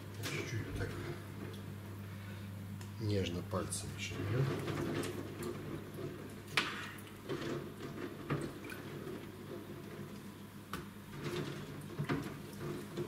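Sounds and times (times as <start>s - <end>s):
water dripping and splashing: 4.5s - 10.5s.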